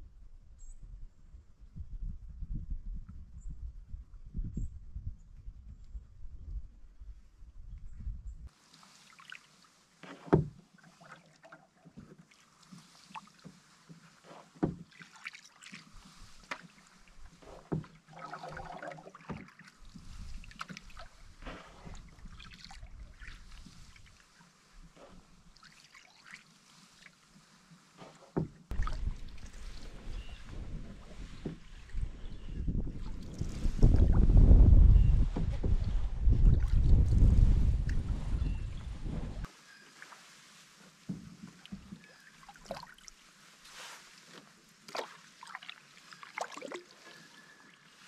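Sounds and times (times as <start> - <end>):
wind on microphone: 0.0 - 8.5, 28.7 - 39.5
paddle strokes in water: 8.5 - 48.0
paddle knocking against hull: 10.0 - 10.7, 13.1 - 15.8, 16.4 - 23.6, 28.0 - 38.4
lapping water: 14.2 - 19.8
water dripping off paddle: 14.6 - 24.2, 41.4 - 43.2.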